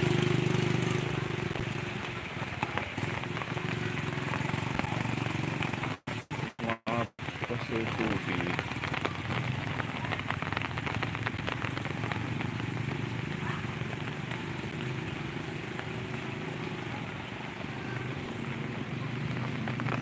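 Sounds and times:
rain pattering: 0:00.0 - 0:20.0.

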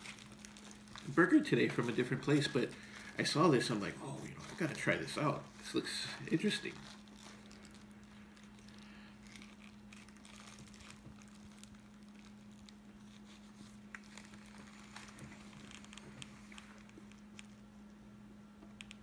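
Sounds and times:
foil wrapper crinkling: 0:00.0 - 0:17.7
person chewing: 0:04.0 - 0:17.6.

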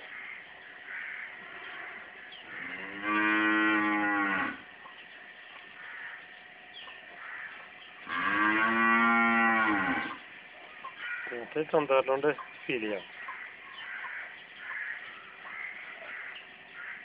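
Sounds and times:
cow mooing: 0:01.6 - 0:04.7, 0:08.0 - 0:10.2.

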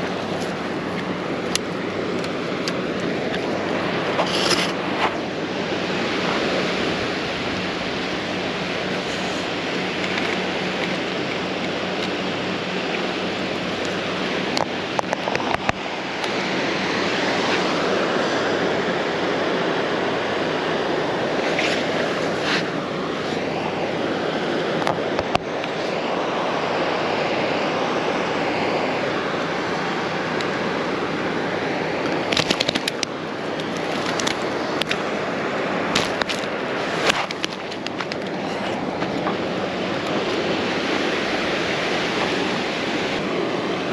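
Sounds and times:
ocean surf: 0:00.0 - 0:43.9
sharp crackling clicks: 0:32.1 - 0:35.0.

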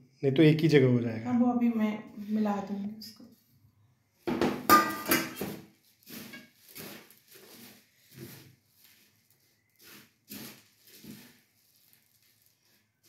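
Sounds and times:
steel plate clattering on table: 0:04.3 - 0:05.6
puffed rice rustling: 0:05.7 - 0:13.0.

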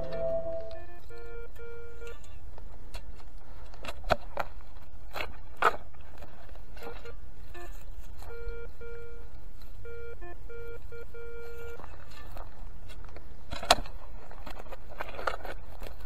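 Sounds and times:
metal detector beeps: 0:00.0 - 0:02.2.

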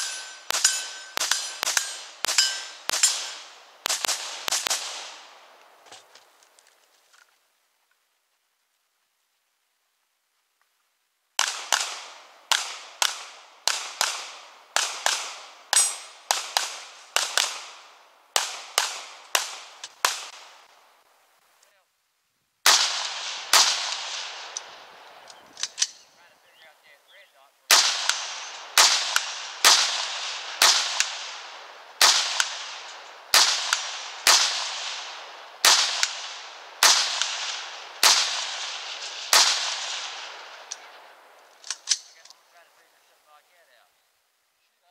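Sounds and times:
gunshots with echo: 0:00.0 - 0:05.6, 0:11.4 - 0:20.8, 0:22.6 - 0:25.9, 0:27.7 - 0:42.0.

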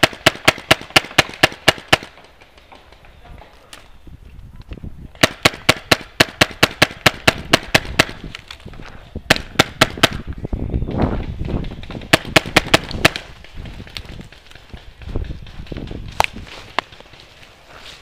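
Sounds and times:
paintball marker firing: 0:00.0 - 0:03.2, 0:05.2 - 0:08.5, 0:09.3 - 0:10.3, 0:11.2 - 0:17.2
rustling through dry leaves: 0:15.7 - 0:18.0.

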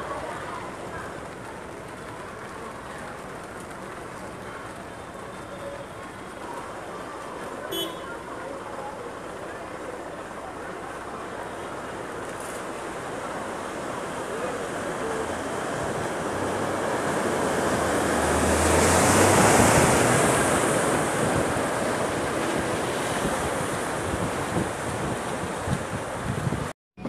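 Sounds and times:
car splashing through floodwater: 0:00.0 - 0:26.7.

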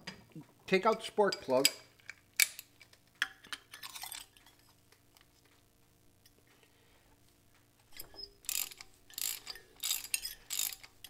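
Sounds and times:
hand ratchet clicking: 0:08.4 - 0:11.0.

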